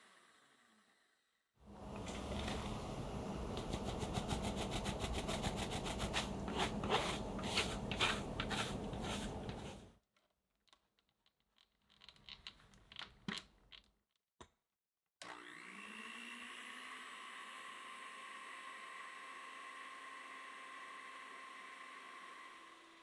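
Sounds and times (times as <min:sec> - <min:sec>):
electric hand mixer: 0:15.2 - 0:23.0.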